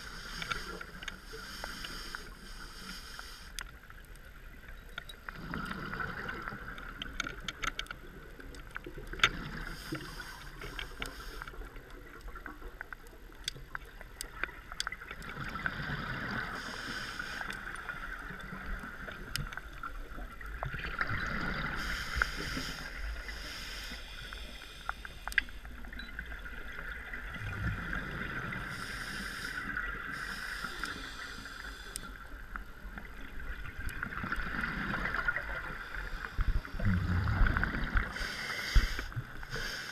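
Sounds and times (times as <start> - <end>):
regulator hissing inhale: 0.0 - 3.7, 9.6 - 11.7, 16.5 - 17.7, 21.7 - 25.6, 28.6 - 32.3, 38.0 - 39.9
faint clicks: 0.1 - 5.4, 6.4 - 15.4, 16.6 - 20.9, 21.8 - 26.9, 28.7 - 36.8
bubbling exhale: 36.6 - 39.9.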